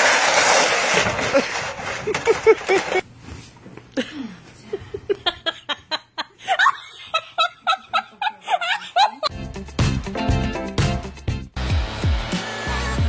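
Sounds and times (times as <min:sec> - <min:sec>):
plastic sled scraping on ice: 0:00.0 - 0:03.0
person laughing: 0:01.3 - 0:03.0, 0:04.0 - 0:09.3.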